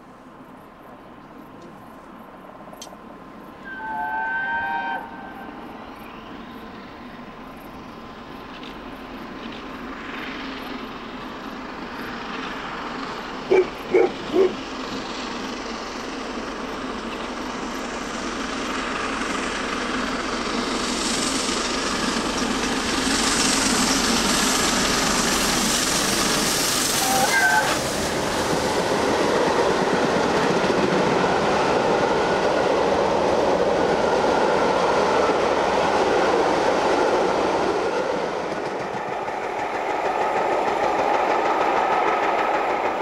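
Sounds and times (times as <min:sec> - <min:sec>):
steam locomotive running: 0:00.0 - 0:43.0
steam whistle blasts: 0:03.6 - 0:05.6, 0:26.9 - 0:28.0.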